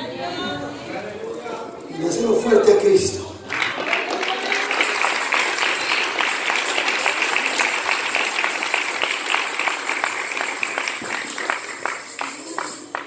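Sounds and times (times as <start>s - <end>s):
congregation applauding: 3.4s - 13.0s.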